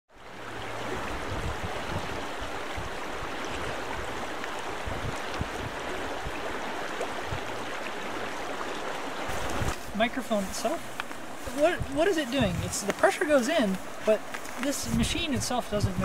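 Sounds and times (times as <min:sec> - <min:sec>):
river rushing over gravel: 0:00.2 - 0:16.0.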